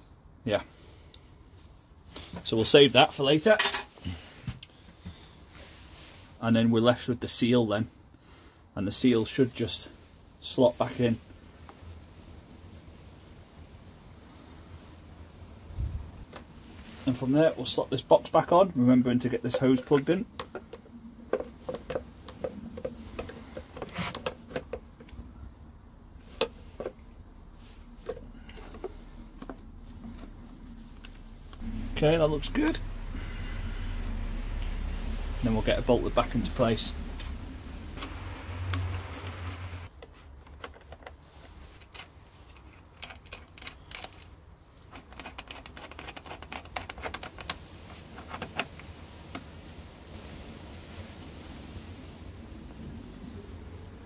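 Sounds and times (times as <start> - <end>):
low rumble of handling: 11.5 - 44.3.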